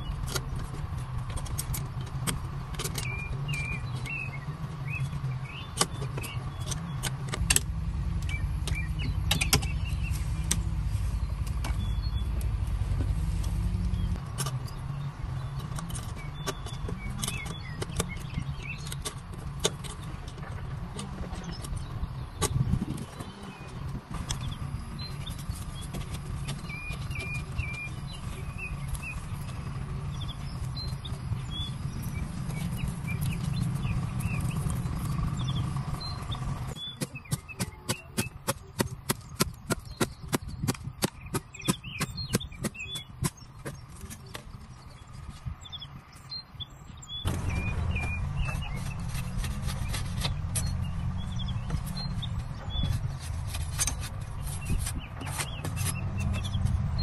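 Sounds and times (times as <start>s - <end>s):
small birds chirping: 0.0s - 57.0s
low rumble: 7.4s - 15.2s
blade chopping bamboo: 36.8s - 44.3s.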